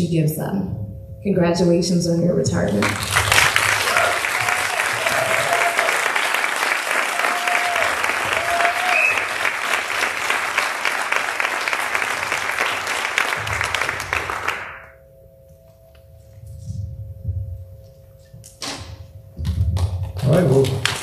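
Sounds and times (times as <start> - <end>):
audience applauding: 2.8 - 15.0, 19.8 - 21.0.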